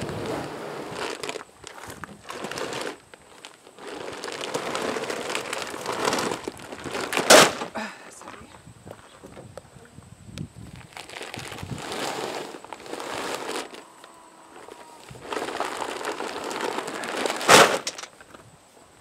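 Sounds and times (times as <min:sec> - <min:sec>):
plastic bags crinkling: 0:00.9 - 0:08.4, 0:10.6 - 0:18.4
bag thudding on ground: 0:03.9 - 0:07.8, 0:15.1 - 0:18.1.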